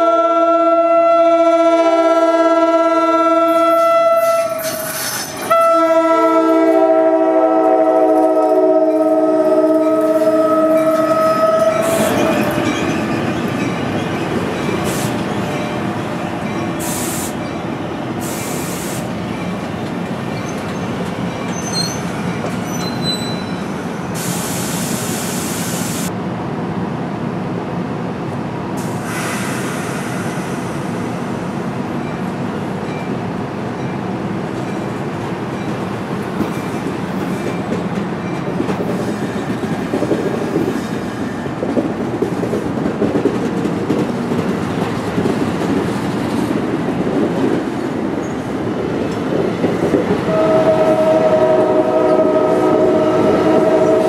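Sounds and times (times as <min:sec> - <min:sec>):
train air horn chord: 0:00.0 - 0:04.9, 0:05.5 - 0:12.1, 0:50.3 - 0:54.0
train rumbling past: 0:00.0 - 0:54.0.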